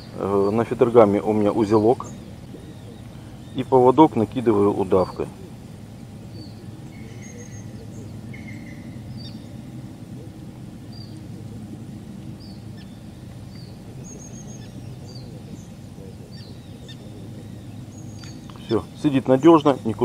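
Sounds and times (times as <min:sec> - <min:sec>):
steady low rumble: 0:00.0 - 0:20.0
bird chirps and whistles: 0:06.4 - 0:09.5.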